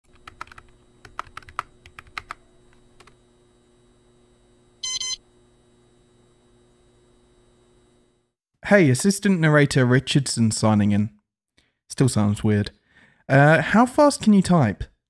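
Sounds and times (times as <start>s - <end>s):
computer keyboard typing: 0.0s - 2.4s, 3.0s - 3.2s
faint steady hum: 0.1s - 10.2s
short computer beep: 4.8s - 5.2s.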